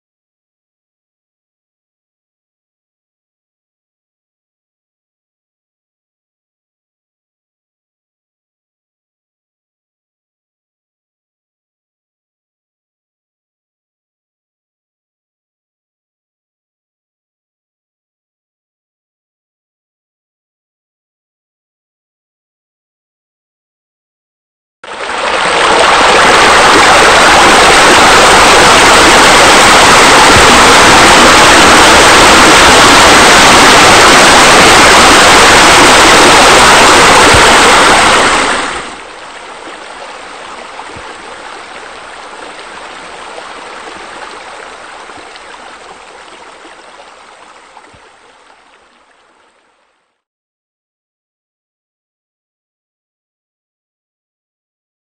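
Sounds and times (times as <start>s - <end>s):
water splashing: 24.8s - 49.6s
rushing water: 24.8s - 50.1s.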